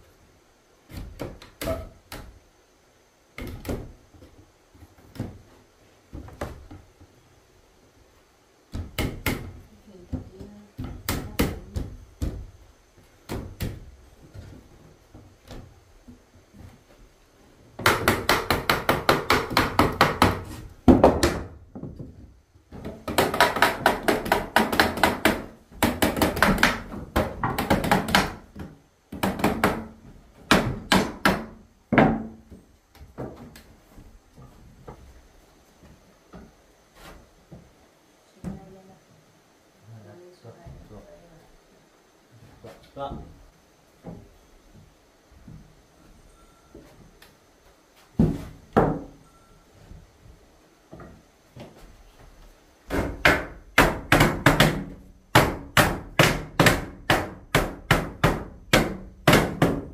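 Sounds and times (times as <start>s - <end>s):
hammer striking wood: 17.8s - 21.6s, 23.0s - 32.4s, 48.2s - 49.2s, 52.9s - 59.9s.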